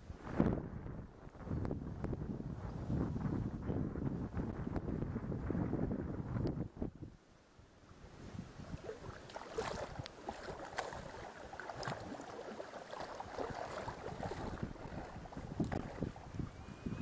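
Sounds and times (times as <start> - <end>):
wind buffeting microphone: 0.0 - 7.2, 8.0 - 17.0
river water splashing against boat: 7.9 - 17.0.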